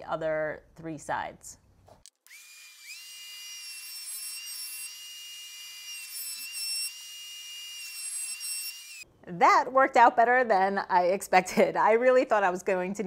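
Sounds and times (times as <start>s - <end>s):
router whining while cutting wood: 2.2s - 9.0s.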